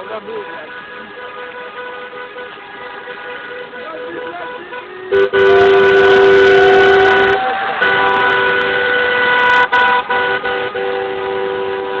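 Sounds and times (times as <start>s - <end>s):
car horns honking: 0.0s - 12.0s.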